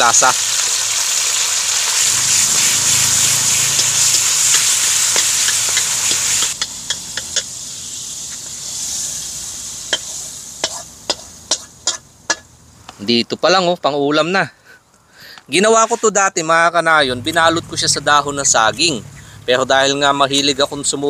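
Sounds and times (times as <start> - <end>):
pork fat sizzling in a wok: 0.0 - 12.8
wooden spoon scraping a wok: 9.9 - 12.5.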